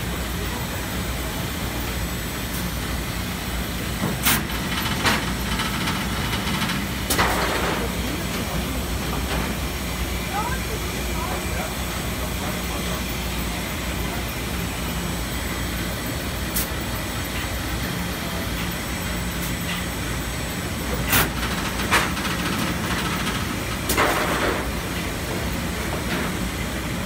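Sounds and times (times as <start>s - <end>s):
machine rattle: 4.3s - 8.0s.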